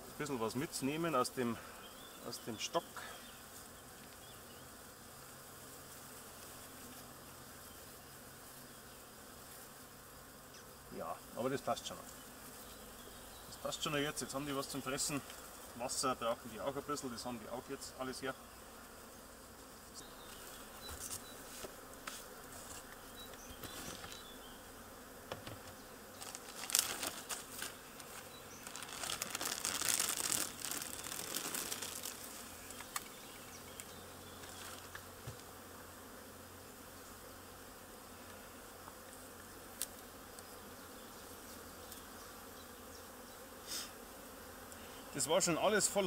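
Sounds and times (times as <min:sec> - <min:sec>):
bees buzzing: 0:00.0 - 0:46.0
plastic foil rustling: 0:26.2 - 0:32.8
smoker puffing: 0:43.6 - 0:44.0.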